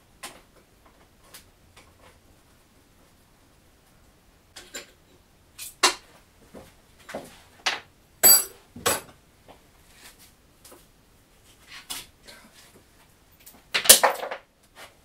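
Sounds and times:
metal tools clinking: 8.2s - 9.0s.

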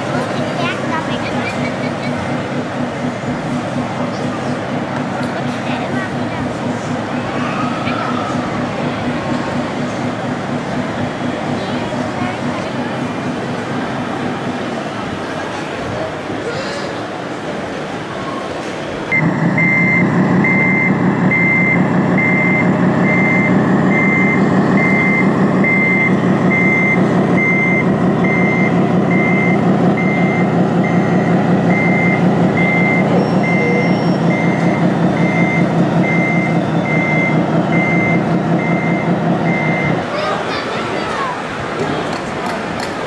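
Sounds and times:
diesel engine throb: 0.0s - 43.0s
reversing beeper: 19.1s - 40.0s.

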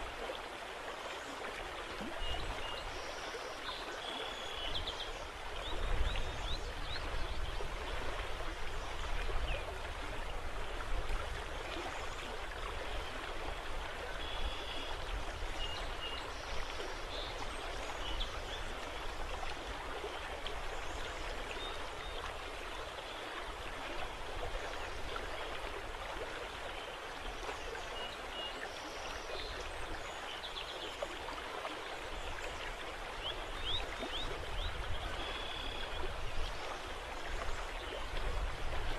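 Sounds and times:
river water rushing: 0.0s - 38.9s
wind: 0.0s - 38.9s
wind gusts on microphone: 38.0s - 38.9s.

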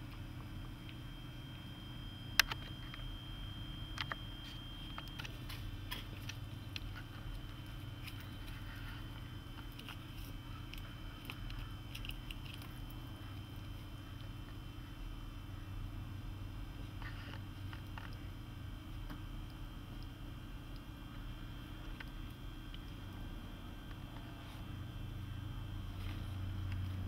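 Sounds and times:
small dog chewing: 5.1s - 14.4s.

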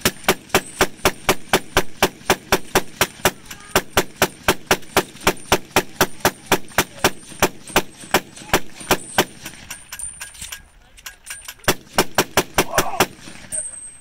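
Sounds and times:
gatling gun firing rapidly: 0.0s - 9.7s, 11.6s - 13.4s.

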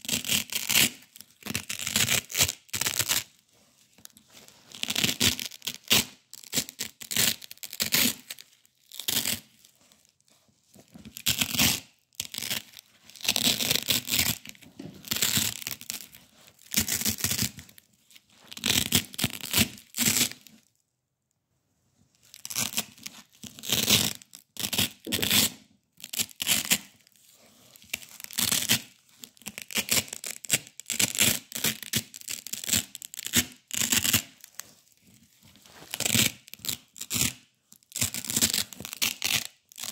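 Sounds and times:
velcro ripping apart: 0.1s - 3.3s, 4.7s - 9.5s, 11.1s - 17.6s, 18.5s - 20.5s, 22.3s - 26.9s, 35.6s - 39.9s.

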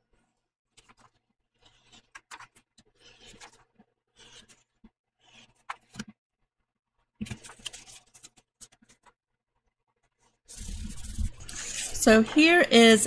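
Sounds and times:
paper rustling: 7.2s - 9.2s
glue stick rubbing on paper: 10.5s - 12.0s.

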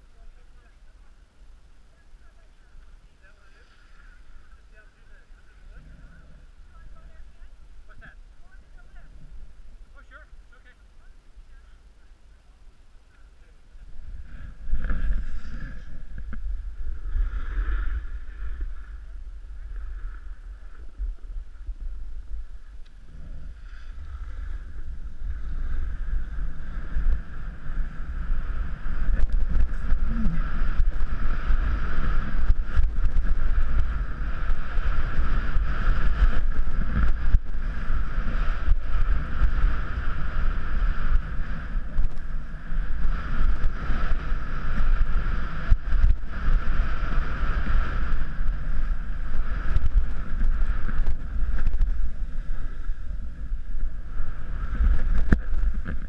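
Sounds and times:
wind buffeting microphone: 13.6s - 56.0s
skis sliding on snow: 14.0s - 56.0s.

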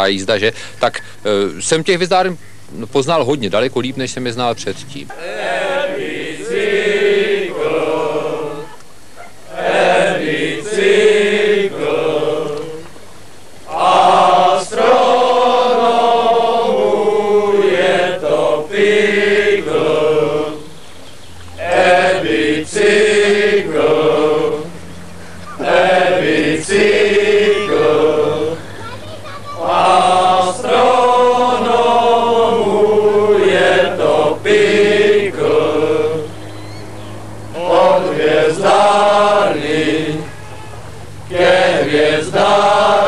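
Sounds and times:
steady low hum: 0.0s - 43.0s
chant-like singing: 5.1s - 8.9s, 9.5s - 13.0s, 13.7s - 20.8s, 21.6s - 28.8s, 29.5s - 36.6s, 37.4s - 43.0s.

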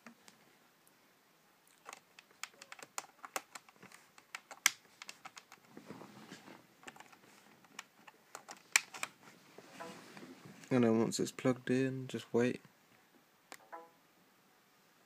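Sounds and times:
phone and cable clicks: 1.8s - 5.7s.

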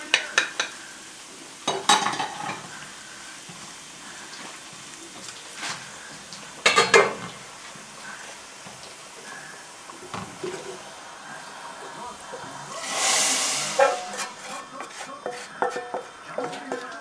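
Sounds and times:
faint sizzle: 0.0s - 17.0s
wooden spoon scraping a pan: 12.8s - 16.9s.

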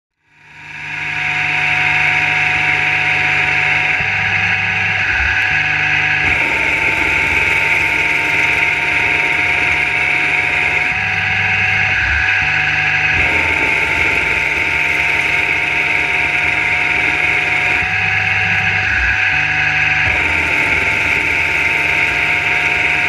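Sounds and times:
lathe machine hum: 0.2s - 23.0s.

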